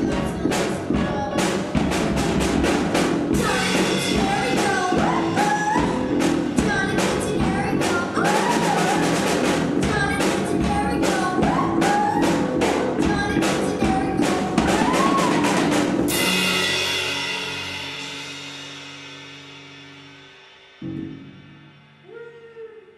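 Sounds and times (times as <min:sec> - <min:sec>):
rock band playing: 0:00.0 - 0:22.0
person singing: 0:03.3 - 0:16.2, 0:22.0 - 0:22.9
cymbal crash: 0:16.1 - 0:22.0.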